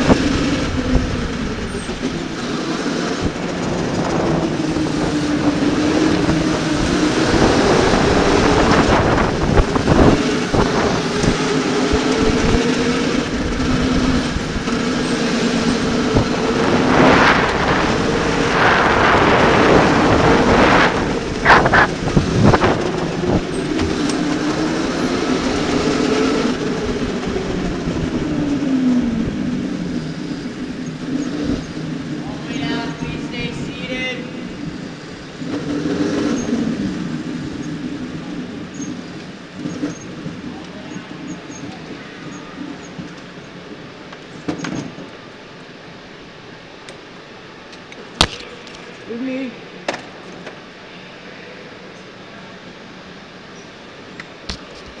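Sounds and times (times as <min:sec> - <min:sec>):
tyre noise: 0:00.0 - 0:26.3
wind noise: 0:00.0 - 0:40.6
electric go-kart motors whining: 0:00.0 - 0:55.0
loud rushes of noise: 0:00.0 - 0:55.0.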